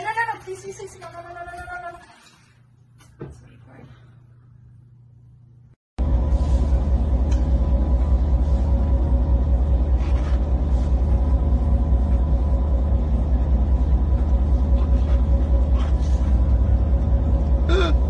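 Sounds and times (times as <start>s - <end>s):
boat engine rumbling: 6.0s - 18.0s.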